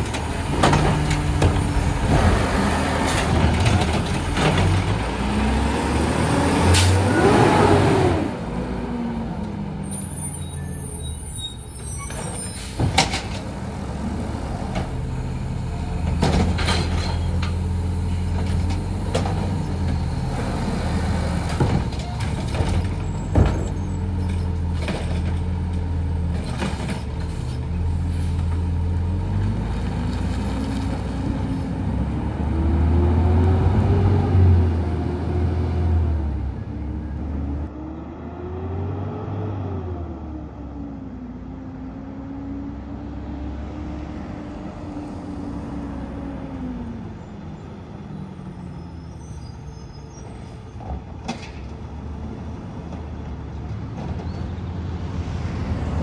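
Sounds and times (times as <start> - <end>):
garbage truck engine revving: 0.2 - 8.6.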